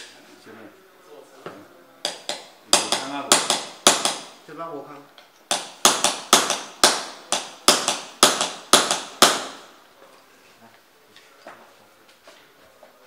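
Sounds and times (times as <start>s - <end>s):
hammer striking metal punch: 5.5s - 9.7s.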